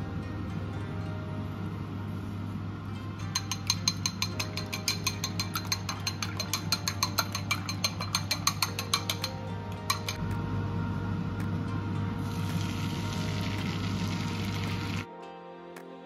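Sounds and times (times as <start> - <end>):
utensil clinking against glass bowl: 3.2 - 10.2.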